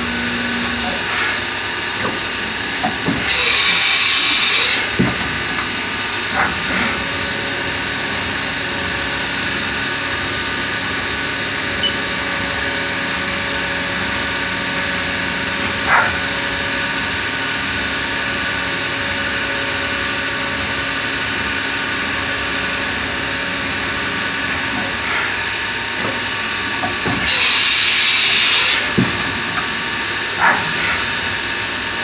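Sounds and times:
milling machine whine: 0.0 - 30.3
short loud machine noises: 3.1 - 5.0, 27.0 - 29.0.

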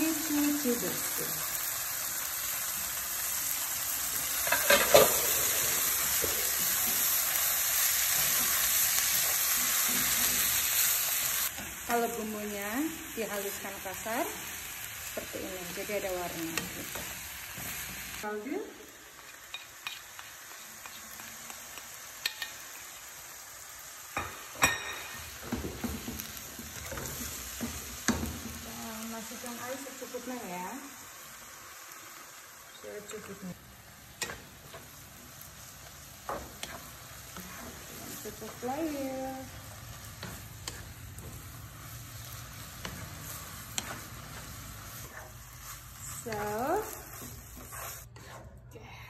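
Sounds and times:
food sizzling in oil: 0.0 - 48.4
wooden spatula scraping pan: 36.3 - 39.2, 42.6 - 48.6.

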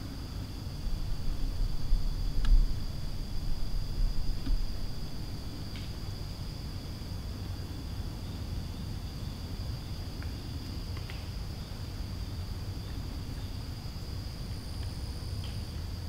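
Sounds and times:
insects trilling: 0.0 - 16.0
low rumble: 0.6 - 5.7
faint ticks: 2.4 - 2.7, 10.1 - 11.3.

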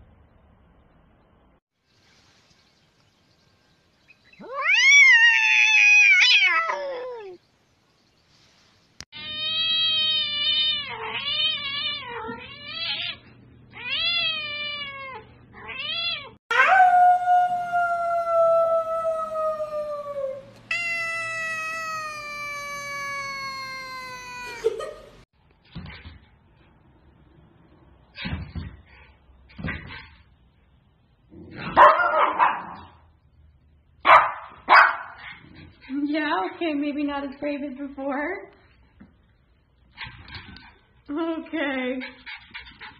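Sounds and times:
cats meowing and yowling: 4.4 - 7.4, 9.2 - 13.2, 13.8 - 24.9.

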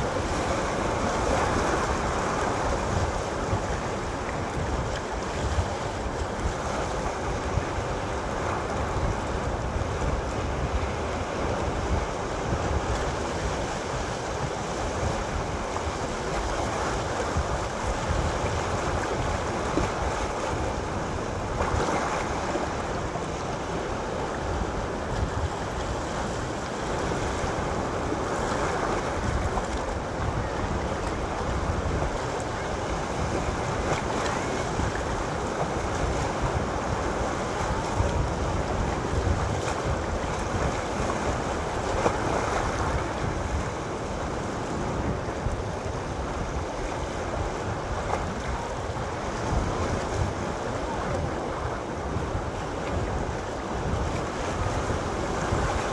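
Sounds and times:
sea waves breaking on rocks: 0.0 - 55.9.

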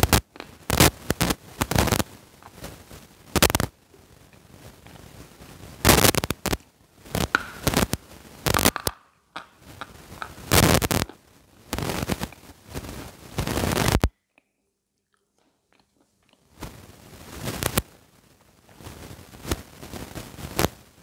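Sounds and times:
person crunching chalk: 0.0 - 14.0.

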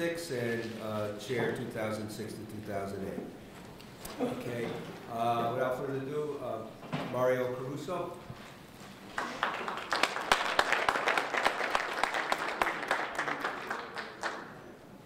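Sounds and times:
audience applauding: 9.1 - 14.7.

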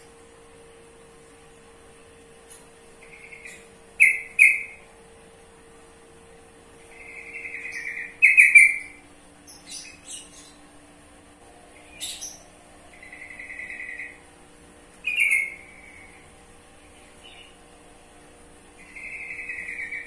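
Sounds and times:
bird chattering calls: 3.0 - 4.8, 6.9 - 10.7, 11.8 - 14.2, 15.0 - 16.3, 18.8 - 20.0.

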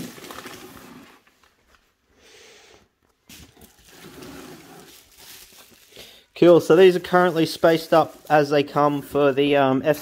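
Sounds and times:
bubble wrap rustling and crinkling: 0.0 - 2.0, 3.2 - 10.0.

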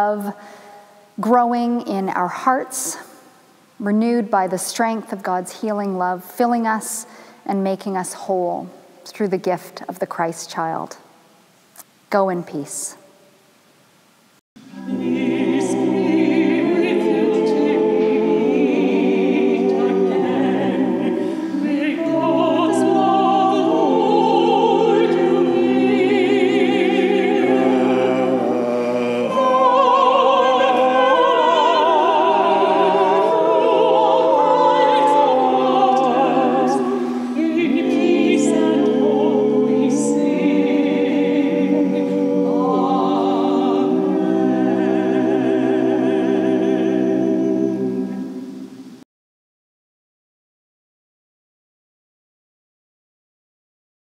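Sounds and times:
vocal ensemble singing harmony: 14.6 - 49.0.

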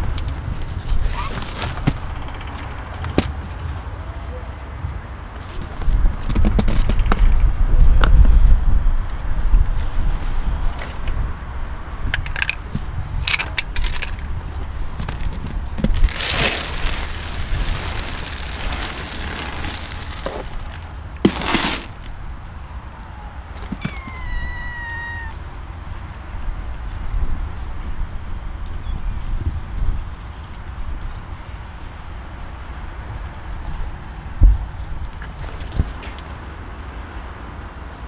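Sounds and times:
rustling: 15.2 - 22.2
kitten meowing: 23.2 - 25.4.

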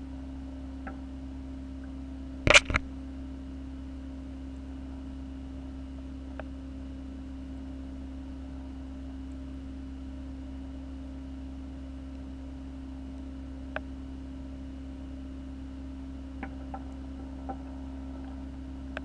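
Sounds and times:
aquarium equipment humming: 0.0 - 19.0
short click: 2.5 - 2.8.

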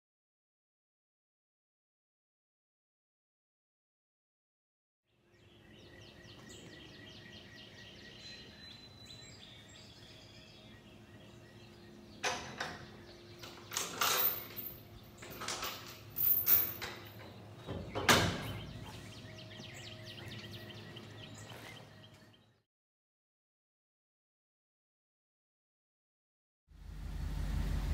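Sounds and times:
small birds chirping: 5.1 - 16.1, 17.0 - 22.6
steady background hum: 5.2 - 22.6.

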